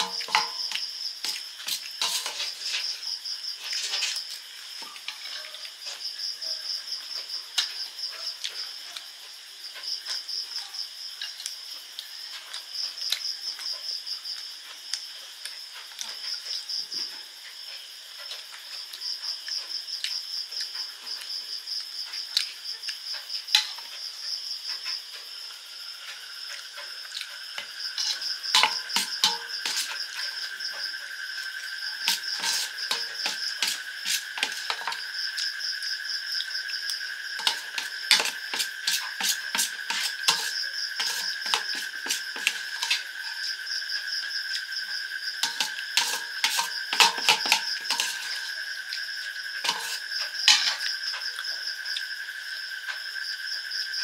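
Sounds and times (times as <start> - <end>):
spoon scraping metal plate: 0.0 - 5.5, 28.0 - 30.3, 32.0 - 35.0, 37.4 - 43.5, 45.4 - 48.6, 49.6 - 50.9
insects chirping: 0.0 - 54.0.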